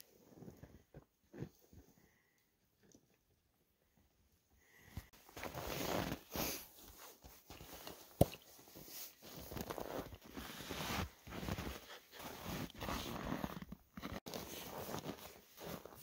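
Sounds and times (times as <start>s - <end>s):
clothing rustling: 5.1s - 16.0s
feet crunching in snow: 9.3s - 16.0s.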